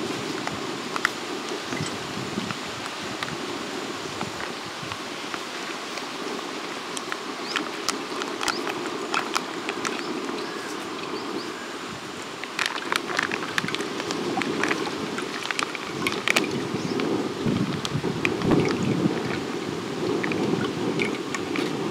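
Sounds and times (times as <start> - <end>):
plastic pouch crackling: 12.3 - 16.7.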